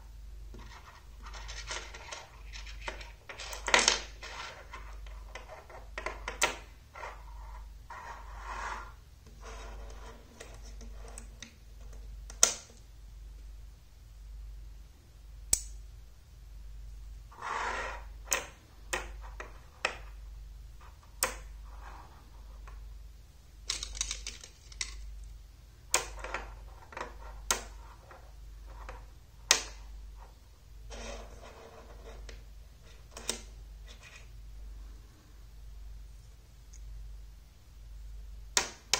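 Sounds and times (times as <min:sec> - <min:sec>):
steady low hum: 0:00.0 - 0:38.9
magnetic pieces clicking together: 0:23.6 - 0:26.5
metal pieces rattling and scraping: 0:23.7 - 0:25.1.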